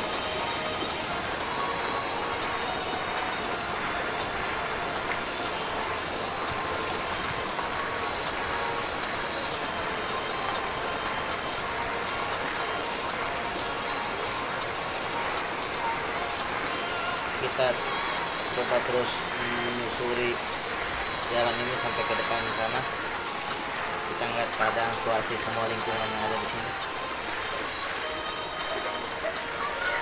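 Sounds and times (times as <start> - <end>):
floodwater rushing: 0.0 - 30.0.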